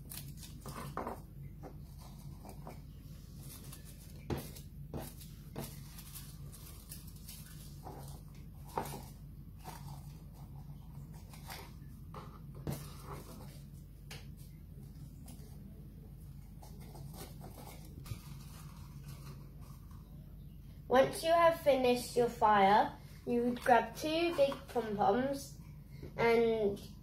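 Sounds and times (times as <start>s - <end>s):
steady low hum: 0.0s - 27.0s
tissue paper rustling: 1.8s - 11.9s, 16.6s - 20.0s.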